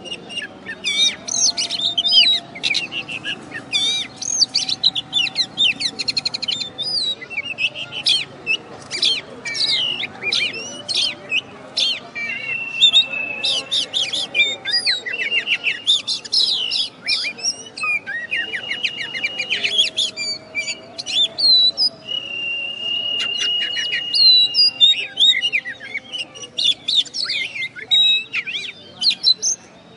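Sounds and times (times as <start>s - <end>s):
bird singing varied song: 0.0s - 29.9s
long steady bird whistle: 12.0s - 29.9s.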